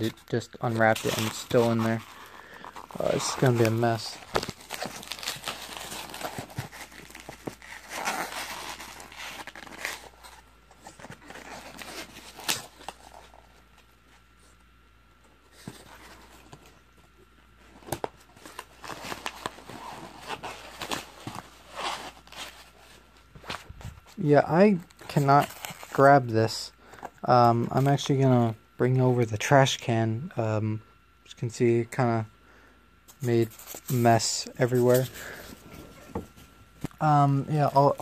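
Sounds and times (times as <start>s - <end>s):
plastic and styrofoam rustling: 0.0s - 13.3s.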